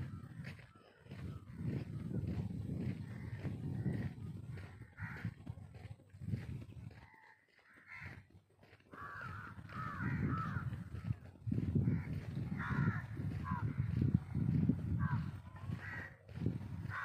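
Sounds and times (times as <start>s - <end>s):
crows cawing: 2.9s - 5.4s, 6.9s - 17.0s.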